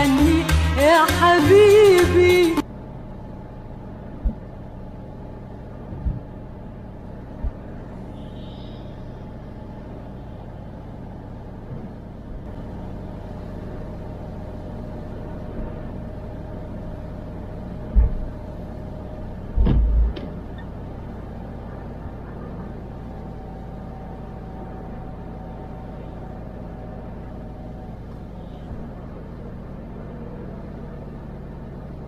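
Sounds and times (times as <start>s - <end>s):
thin steady hum: 2.6s - 29.8s
car driving on wet road: 9.8s - 32.0s
short low thumps: 17.8s - 18.3s, 19.5s - 20.4s.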